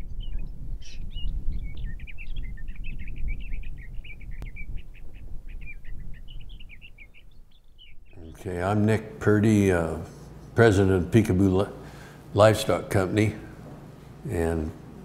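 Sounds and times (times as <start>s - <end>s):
small birds chirping: 0.0s - 9.1s.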